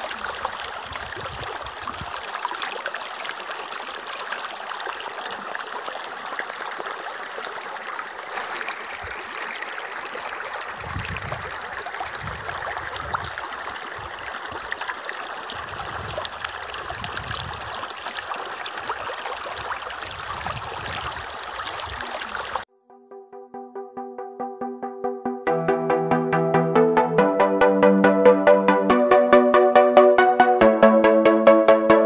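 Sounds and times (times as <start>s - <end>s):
hose water splashing on plastic: 0.0s - 22.7s.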